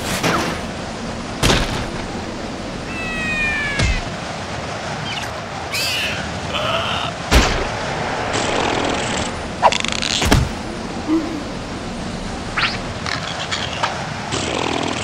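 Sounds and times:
cartoon wind gusting: 0.7s - 13.4s
sharp thuds: 7.3s - 10.6s.

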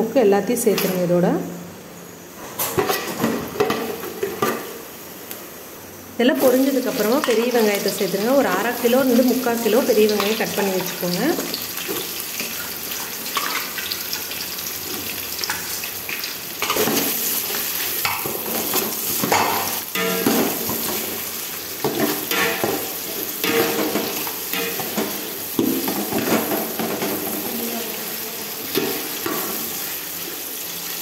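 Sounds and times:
onions sizzling in oil: 6.2s - 31.0s.

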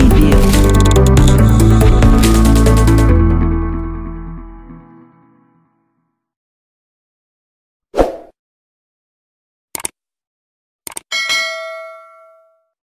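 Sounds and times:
quick clicks: 9.8s - 10.0s, 10.9s - 11.1s
bell ding: 11.1s - 12.8s.

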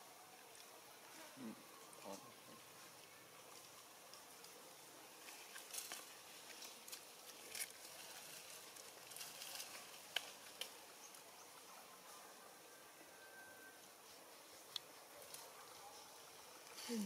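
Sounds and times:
faint outdoor hiss: 0.0s - 17.0s
soft rustles: 2.8s - 10.8s.

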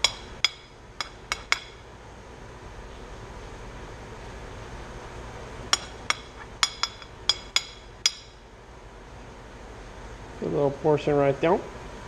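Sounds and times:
metal spoon clinking on dishes: 5.8s - 8.4s.

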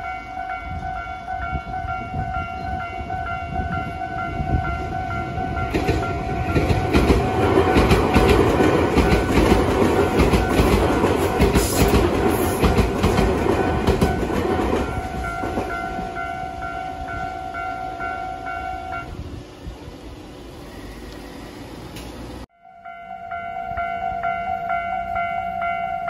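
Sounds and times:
level-crossing warning bell: 0.0s - 19.2s, 22.5s - 26.0s
train wheels clattering: 4.4s - 16.9s.

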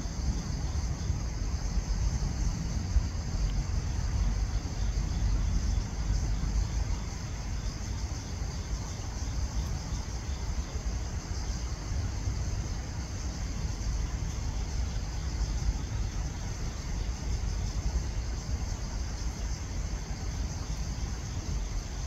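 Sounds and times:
distant road traffic rumble: 0.0s - 22.0s
insects chirring: 0.0s - 22.0s.

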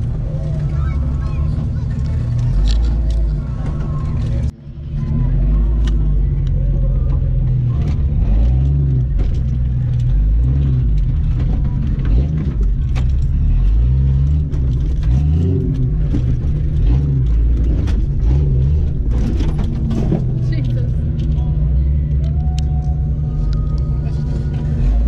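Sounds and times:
engine revving: 0.0s - 25.0s
clicks and rattles in cab: 14.2s - 21.4s.

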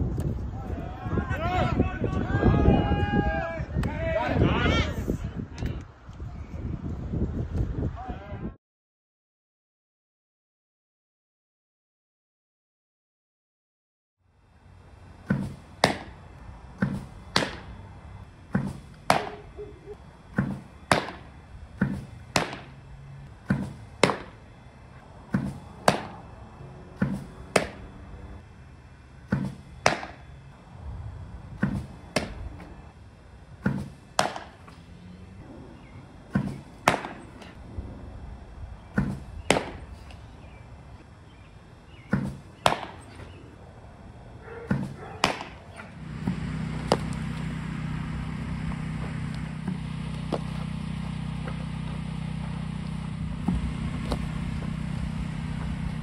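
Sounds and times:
baseballs smacking into mitt: 15.2s - 16.2s, 16.8s - 17.8s, 18.5s - 19.5s, 20.3s - 22.8s, 23.4s - 24.4s, 25.3s - 26.2s, 27.0s - 27.9s, 29.3s - 30.2s, 31.6s - 32.7s, 33.6s - 34.8s, 36.3s - 37.6s, 39.0s - 40.2s, 42.1s - 43.4s, 44.7s - 47.3s.

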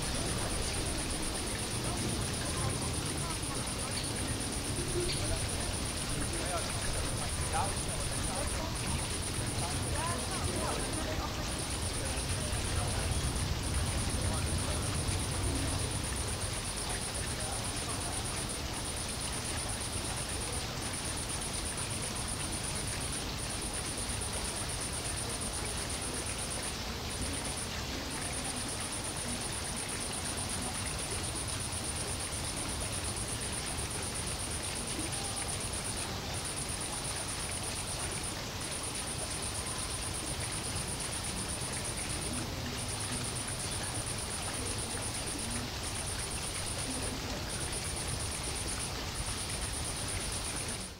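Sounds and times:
steady ambient hiss: 0.0s - 50.9s.

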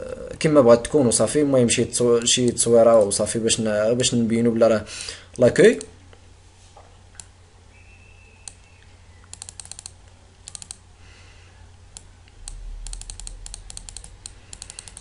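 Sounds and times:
faint steady hum: 0.0s - 15.0s
computer mouse clicking: 8.4s - 8.6s, 9.2s - 10.8s, 11.9s - 15.0s
low rumble: 11.7s - 15.0s.

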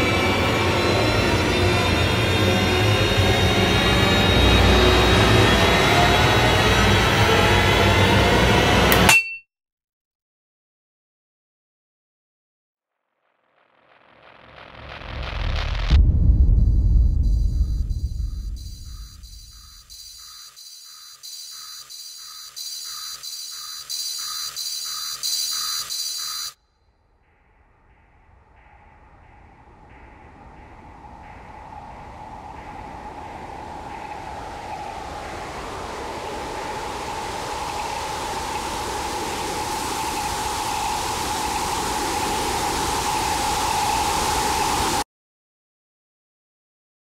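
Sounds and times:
held mid-pitched tone: 8.9s - 9.4s
electronic pulsing tone: 16.6s - 26.6s
electronic hiss: 17.1s - 26.6s, 33.8s - 45.0s.

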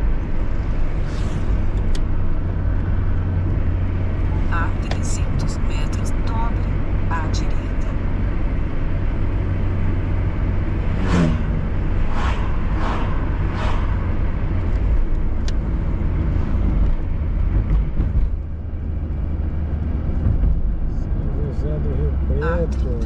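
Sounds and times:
passing whooshes: 0.0s - 4.6s, 10.5s - 17.1s
car driving rumble inside: 0.0s - 23.0s.

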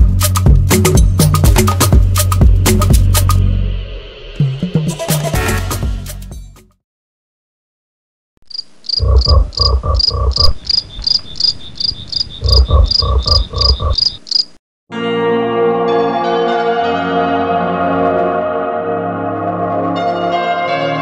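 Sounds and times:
deep pulsed frog croaks: 8.5s - 14.6s
frog high chirps: 8.5s - 14.6s
music with bell-like tones: 14.9s - 18.4s.

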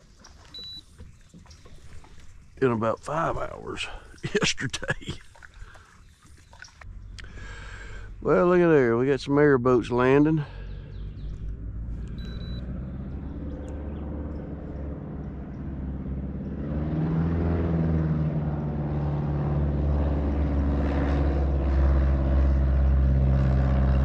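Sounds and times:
airboat engine and propeller drone: 0.0s - 24.0s.

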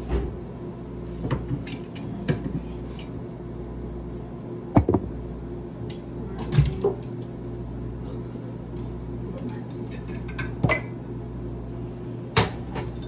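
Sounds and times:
steady low hum: 0.0s - 13.0s
containers knocking in cupboard: 4.8s - 5.1s.

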